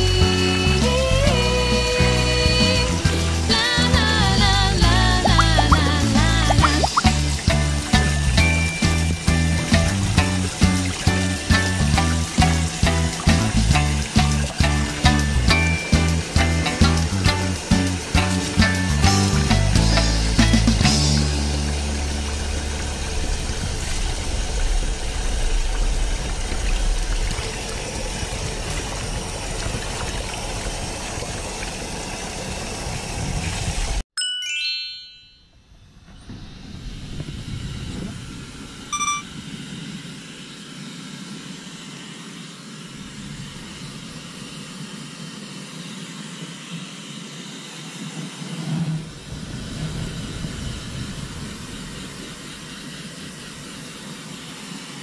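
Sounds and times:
tap water running: 5.2 - 19.4
single ding: 34.2 - 35.6, 39.0 - 39.3
bright chime: 34.2 - 35.7, 39.0 - 39.3.

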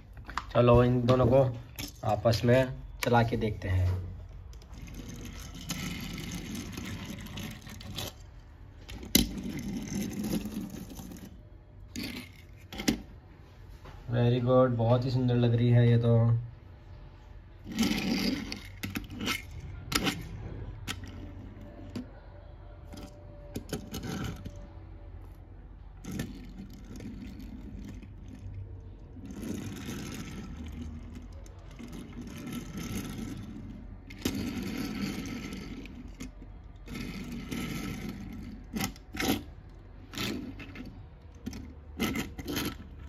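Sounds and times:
toy car wheels rolling on plastic: 3.0 - 13.2, 17.6 - 43.0
toy cars bumping together: 17.7 - 22.1, 22.8 - 24.6.

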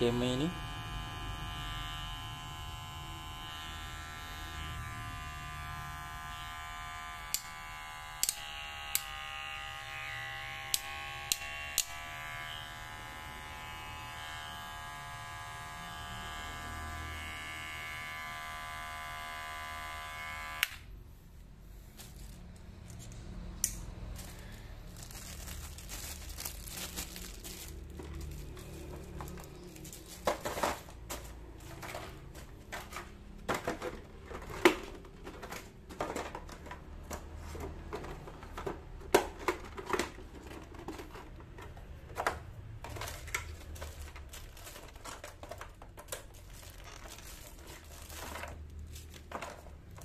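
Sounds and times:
hair clipper buzzing: 0.0 - 20.9
plastic packaging crinkling: 24.1 - 31.9, 42.9 - 50.0.

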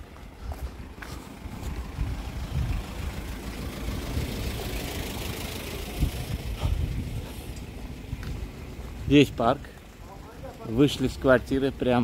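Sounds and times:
light truck driving past: 0.1 - 9.0.

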